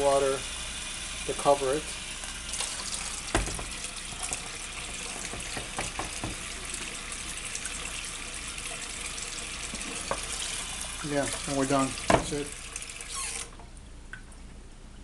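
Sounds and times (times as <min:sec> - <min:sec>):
water pouring into a pot: 0:00.0 - 0:13.6
knocks on a pot: 0:03.3 - 0:03.8, 0:05.3 - 0:06.4.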